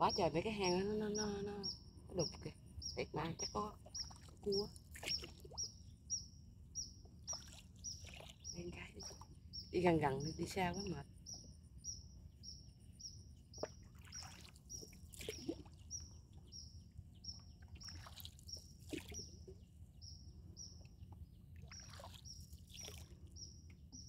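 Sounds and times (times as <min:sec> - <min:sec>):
paddle splashing through water: 0:04.0 - 0:05.6, 0:07.3 - 0:08.5, 0:13.6 - 0:15.8, 0:17.8 - 0:19.3, 0:21.6 - 0:23.2.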